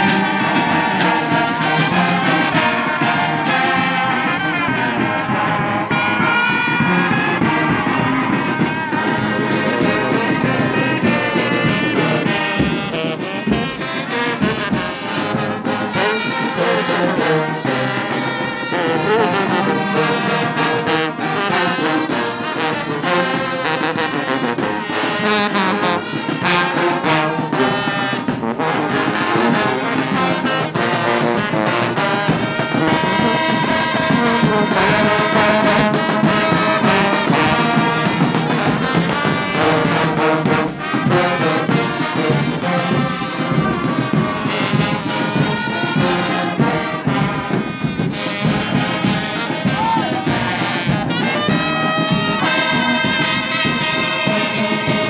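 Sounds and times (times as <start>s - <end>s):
brass band playing: 0.0s - 55.0s.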